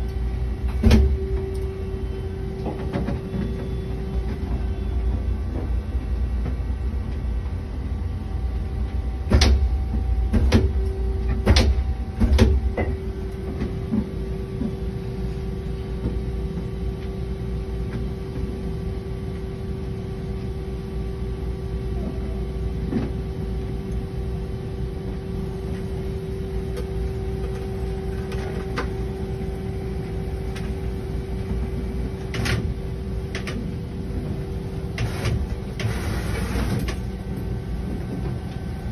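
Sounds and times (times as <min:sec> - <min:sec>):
constant machine tone: 0:00.0 - 0:38.9
machine clunks: 0:00.6 - 0:01.7, 0:09.3 - 0:13.8.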